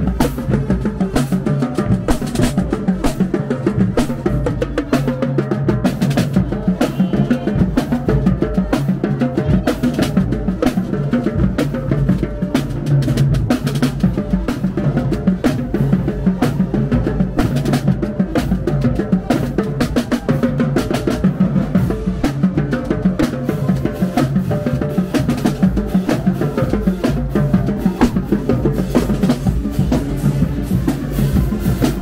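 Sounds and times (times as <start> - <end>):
marching band playing: 0.0 - 32.0
snare and bass drums: 0.0 - 32.0.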